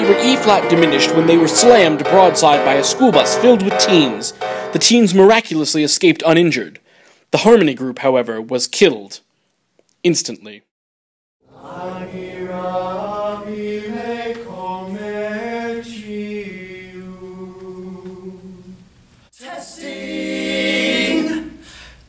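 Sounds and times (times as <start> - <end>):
male vocal quartet singing a cappella: 11.5 - 21.7.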